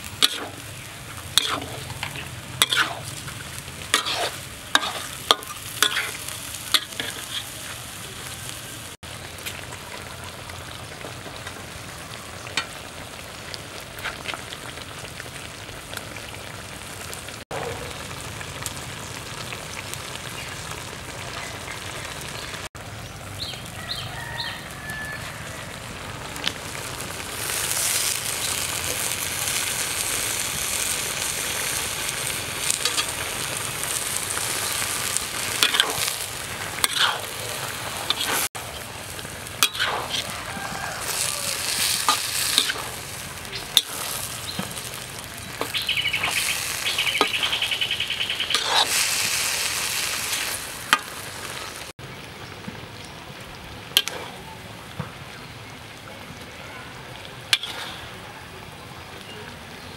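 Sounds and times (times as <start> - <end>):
food sizzling in a wok: 0.0 - 56.5, 57.1 - 59.9
spatula scraping and knocking pan: 1.4 - 3.2, 3.9 - 6.2, 36.8 - 37.2.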